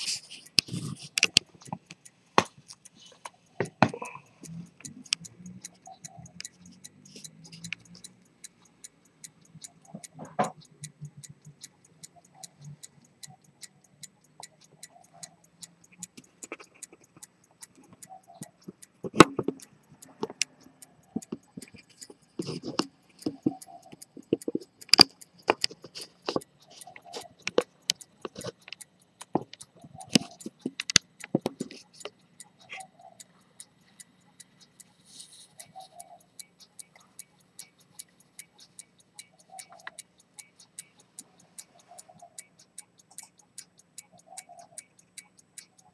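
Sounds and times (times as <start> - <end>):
irregular clicks and knocks: 0.0 - 34.9
pocket watch ticking: 0.0 - 45.9.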